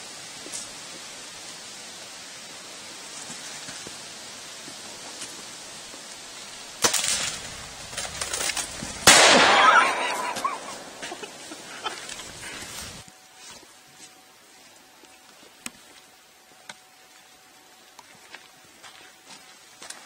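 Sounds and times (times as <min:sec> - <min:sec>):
low steady hiss: 0:00.0 - 0:20.0
bow string sharp crack: 0:09.0 - 0:11.0.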